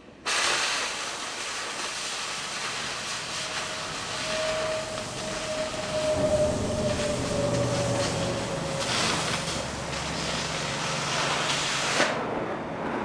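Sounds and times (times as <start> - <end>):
cutting torch hissing: 0.2 - 12.2
steady whistle: 3.4 - 10.1.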